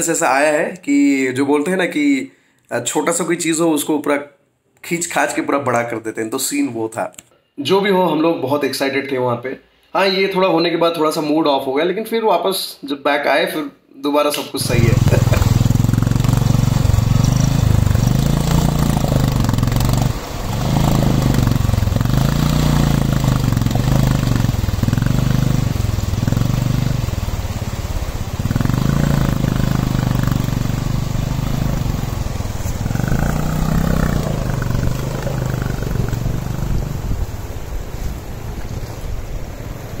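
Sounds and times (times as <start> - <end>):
motorcycle engine revving: 14.6 - 37.5
water rushing and splashing: 14.6 - 40.0.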